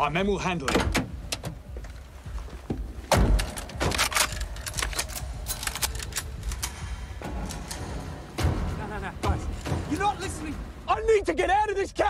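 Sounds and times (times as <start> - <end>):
sharp clicks and rattles: 3.2 - 8.5.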